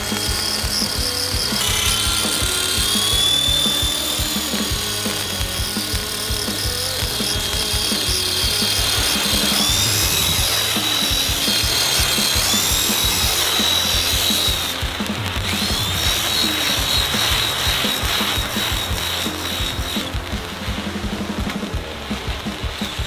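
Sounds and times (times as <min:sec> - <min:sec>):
model helicopter rotors whining: 0:00.0 - 0:23.0.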